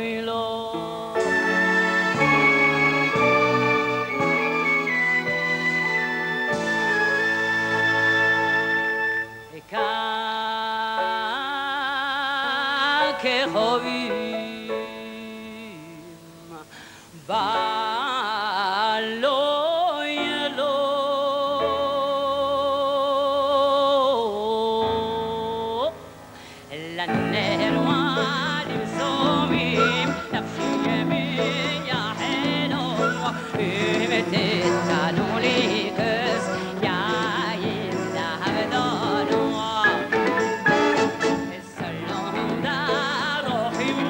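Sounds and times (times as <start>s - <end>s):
woman singing: 0.0s - 44.0s
orchestral chords: 1.2s - 9.6s.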